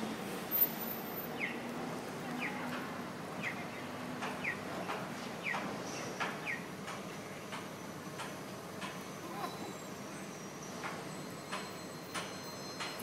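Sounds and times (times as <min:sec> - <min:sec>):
street traffic: 0:00.0 - 0:13.0
crossing signal chirping: 0:09.1 - 0:13.0.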